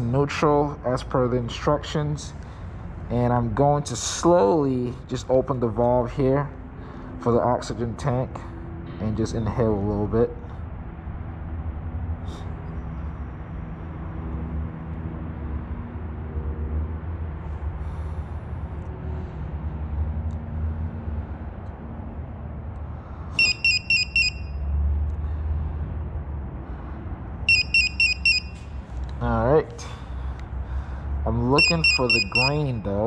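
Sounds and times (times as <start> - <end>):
rapid high-pitched alarm beeps: 23.4 - 24.6, 27.5 - 28.6, 31.6 - 32.9.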